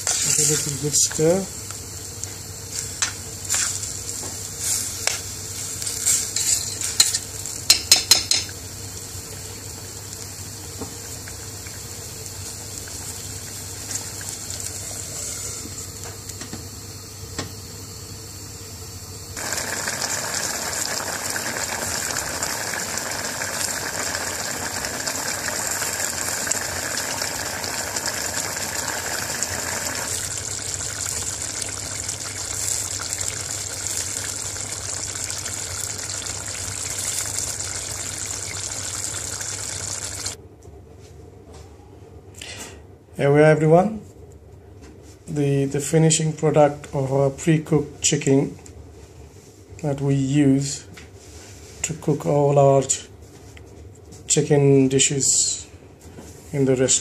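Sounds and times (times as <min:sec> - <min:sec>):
curry sizzling and bubbling: 0:00.0 - 0:16.4, 0:19.4 - 0:40.4.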